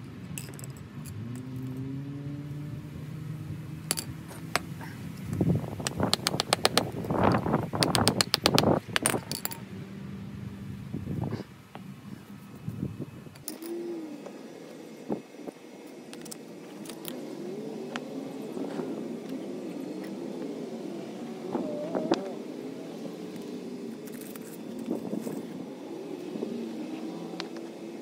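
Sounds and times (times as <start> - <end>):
distant engine drone: 1.1 - 28.0
paver stones clacking: 3.9 - 9.6, 15.9 - 17.2.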